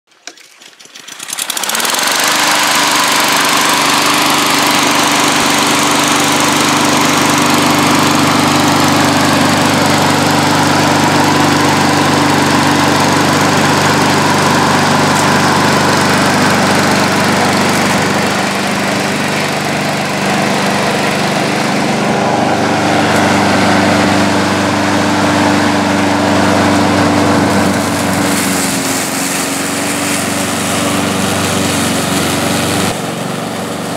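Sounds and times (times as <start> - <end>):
lawn mower engine: 0.1 - 33.9.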